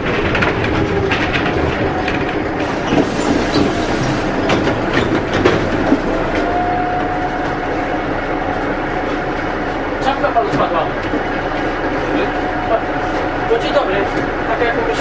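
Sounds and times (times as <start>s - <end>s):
bus fittings rattling: 0.0s - 6.0s
bus ride rumbling: 0.0s - 15.0s.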